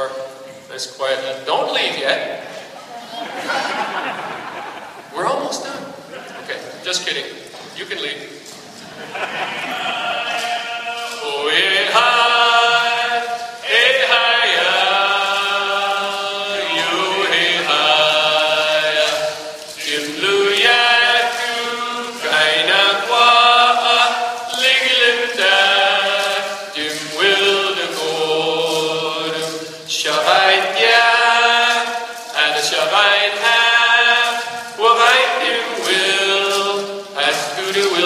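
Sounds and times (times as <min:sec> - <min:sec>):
group chanting in long held notes: 0:09.3 - 0:38.0.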